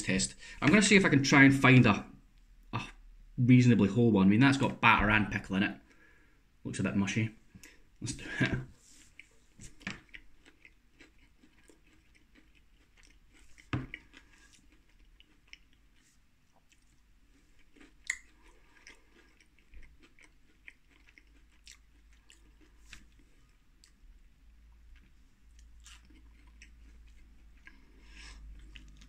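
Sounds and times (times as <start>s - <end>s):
person chewing food: 8.4s - 29.0s.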